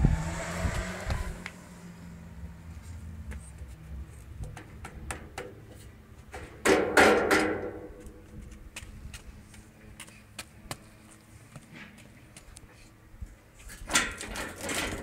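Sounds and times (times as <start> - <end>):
metal cart clanking knocks: 6.4 - 7.9.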